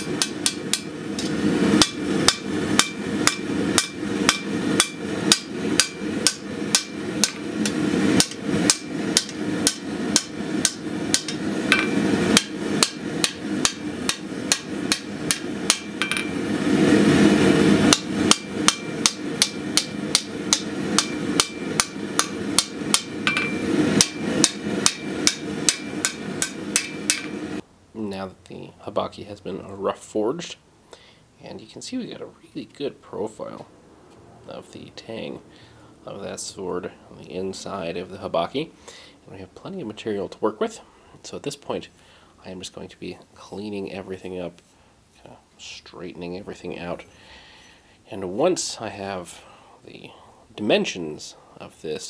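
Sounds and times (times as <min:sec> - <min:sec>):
hammer striking hot metal: 0:00.0 - 0:16.5, 0:17.6 - 0:27.6
steady rushing noise: 0:00.0 - 0:27.6.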